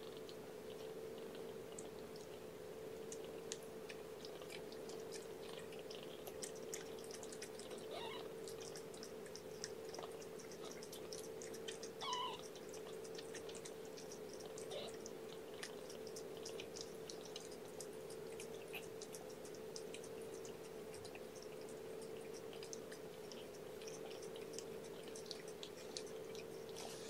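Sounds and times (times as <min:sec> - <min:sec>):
cat licking wet clicks: 0:00.0 - 0:27.0
kitten mewing: 0:07.8 - 0:08.3, 0:12.0 - 0:12.5, 0:14.6 - 0:15.1.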